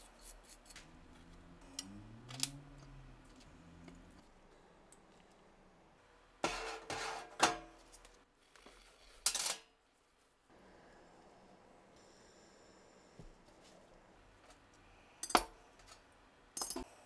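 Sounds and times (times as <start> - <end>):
steel parts clinking: 16.6 - 16.9.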